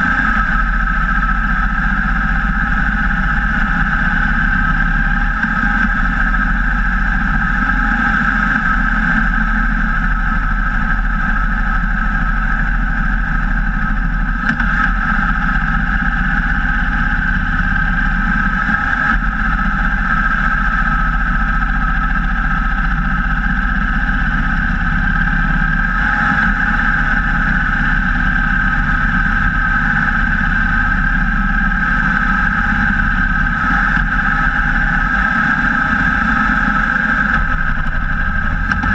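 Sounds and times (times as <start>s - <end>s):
motorcycle engine running: 0.0s - 38.9s
wind and road noise: 0.0s - 38.9s.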